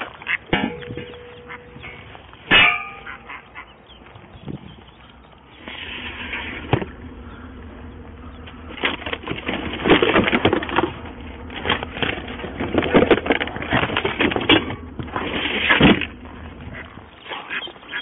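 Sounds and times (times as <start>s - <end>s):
bags and boxes rustling and clattering: 8.6s - 18.0s.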